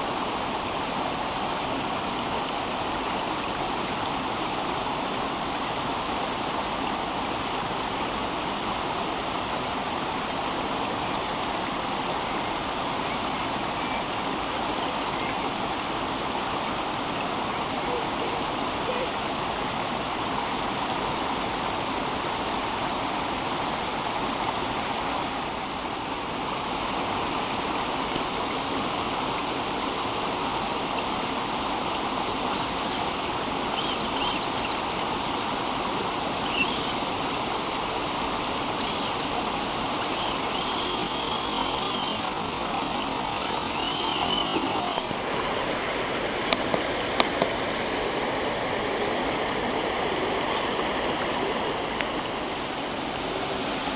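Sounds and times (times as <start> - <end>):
stream water over rocks: 0.0 - 53.9
toy car motor whining: 32.4 - 35.0, 36.1 - 37.4, 38.5 - 45.2.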